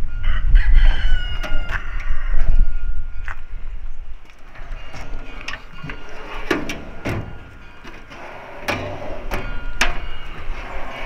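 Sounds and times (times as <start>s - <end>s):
metal drawers sliding: 4.4s - 11.0s.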